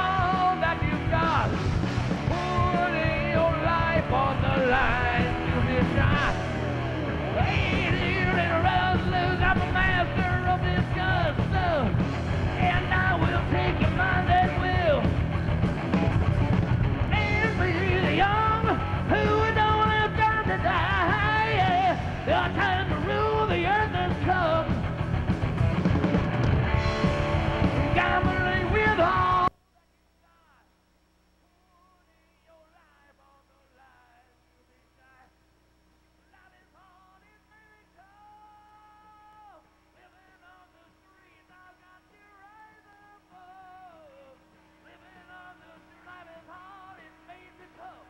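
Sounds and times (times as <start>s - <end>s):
bass guitar: 0.0s - 29.5s
distorted electric guitar leads: 0.0s - 29.5s
drums: 0.0s - 29.7s, 36.0s - 48.0s.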